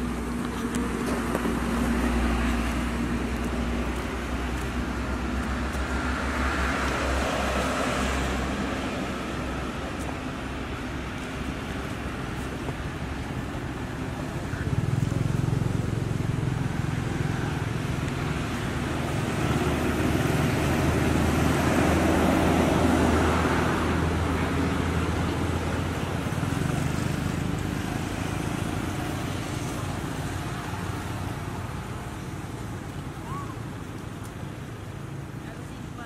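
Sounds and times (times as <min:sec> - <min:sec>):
vehicle passing on road: 0:00.0 - 0:36.0.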